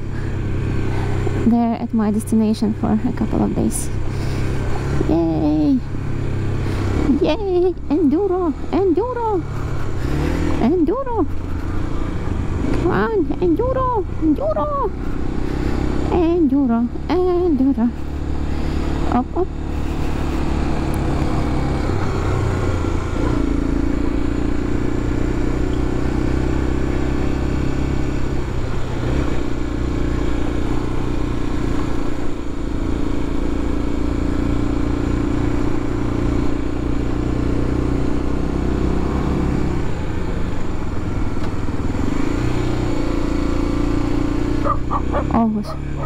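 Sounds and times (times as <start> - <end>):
motorcycle engine running under load: 0.0 - 46.0.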